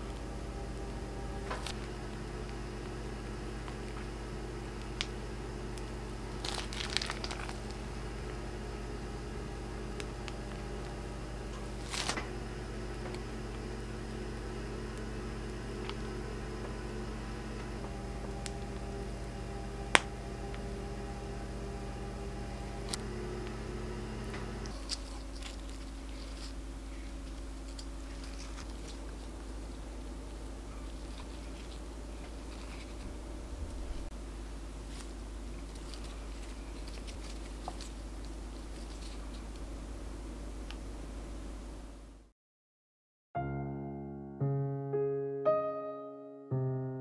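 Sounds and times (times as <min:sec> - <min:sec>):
low room hum: 0:00.0 - 0:42.3
plastic piping bag rustling: 0:04.8 - 0:08.7, 0:09.5 - 0:12.4, 0:24.7 - 0:40.3.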